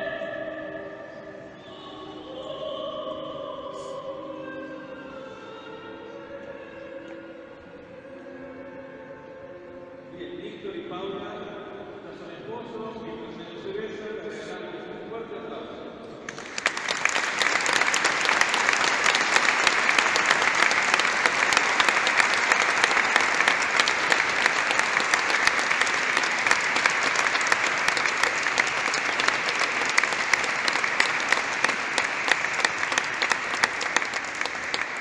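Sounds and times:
crowd applauding: 16.3s - 35.0s.

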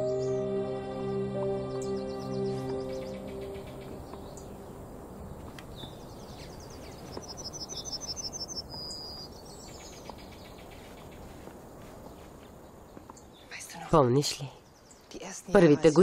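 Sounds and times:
insects chirping: 0.0s - 11.3s
birds chirping: 0.0s - 16.0s.

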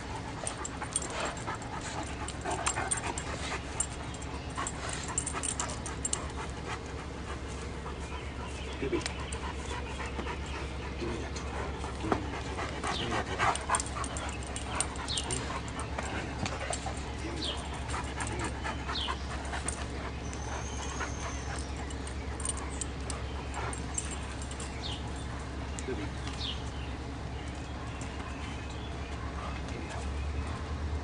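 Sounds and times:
dogs playing and scuffling: 0.0s - 31.0s
steady low hum: 0.0s - 31.0s.

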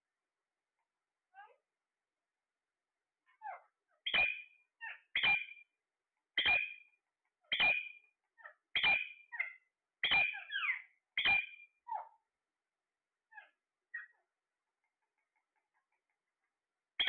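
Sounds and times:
parakeet calling: 3.5s - 5.6s, 6.4s - 6.8s, 7.5s - 8.0s, 8.8s - 12.1s.

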